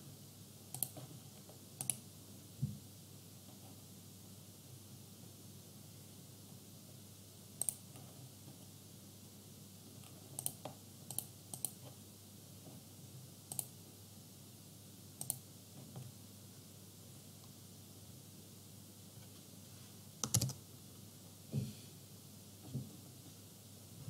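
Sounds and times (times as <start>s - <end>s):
computer mouse buttons clicking: 0.7s - 1.0s, 1.8s - 2.0s, 7.6s - 7.8s, 10.4s - 11.8s, 13.5s - 13.7s, 15.2s - 15.4s, 20.2s - 20.6s.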